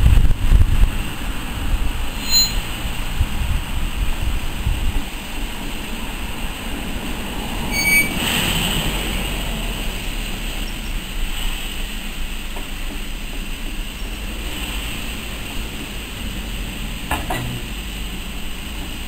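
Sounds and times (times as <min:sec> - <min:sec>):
steam locomotive rolling rumble: 0:00.0 - 0:19.0
wheel squeals: 0:02.1 - 0:03.1, 0:07.6 - 0:08.6.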